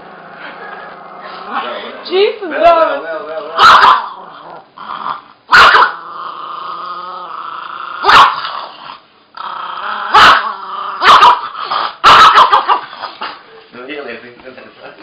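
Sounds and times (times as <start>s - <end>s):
small dog growling and snarling: 3.4s - 13.4s
small dog barking sharply: 5.5s - 6.0s, 8.0s - 8.4s, 11.0s - 11.4s, 12.0s - 12.8s.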